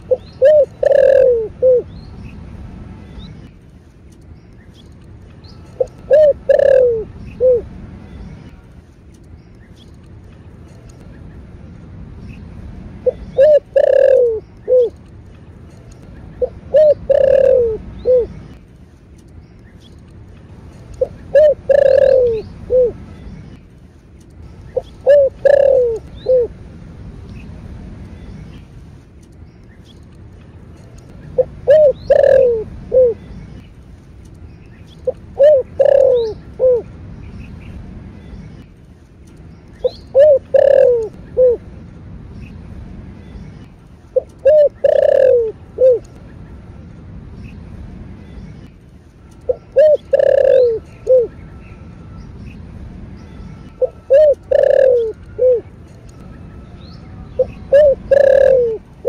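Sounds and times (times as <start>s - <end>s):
dove cooing: 0.0s - 1.9s, 5.7s - 7.8s, 13.0s - 15.0s, 16.4s - 18.4s, 21.0s - 23.0s, 24.7s - 26.6s, 31.4s - 33.2s, 35.0s - 36.9s, 39.8s - 41.6s, 44.2s - 46.1s, 49.4s - 51.4s, 53.8s - 55.7s, 57.4s - 59.0s.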